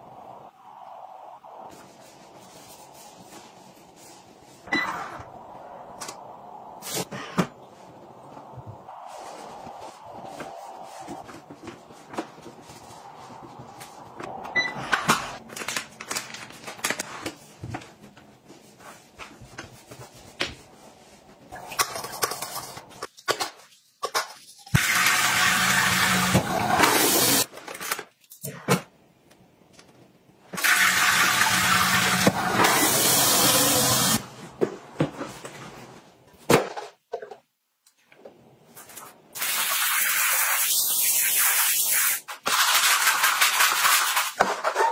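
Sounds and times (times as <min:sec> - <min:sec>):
toilet flushing: 0:24.8 - 0:27.5, 0:30.6 - 0:34.2
brush scrubbing toilet: 0:39.4 - 0:44.9.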